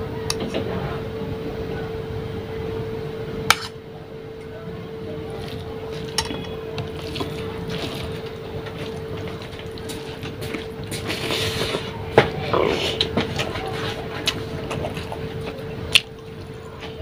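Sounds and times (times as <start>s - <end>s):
steady low hum: 0.0s - 17.0s
food mixed by hand on plate: 5.3s - 17.0s
metal spoon clinking plate: 6.1s - 6.9s.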